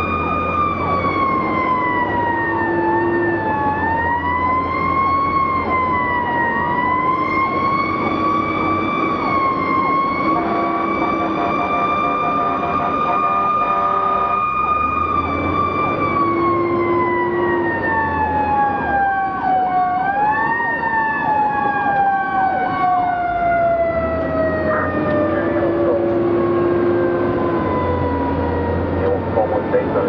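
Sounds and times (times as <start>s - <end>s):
electronic yelp siren: 0.0s - 30.0s
truck engine rumbling: 0.0s - 30.0s
air horn blast: 10.3s - 14.4s.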